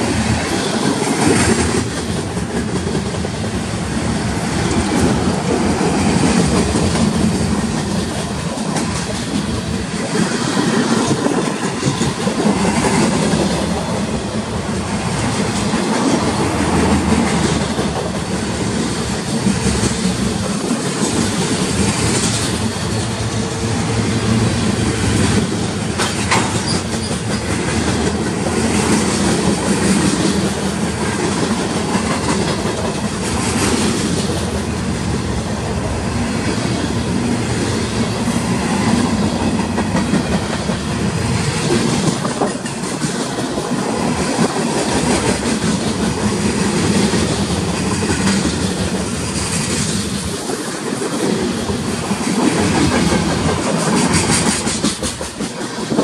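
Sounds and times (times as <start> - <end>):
freight train rumbling past: 0.0 - 56.0
wheels clattering over rail joints: 38.8 - 56.0.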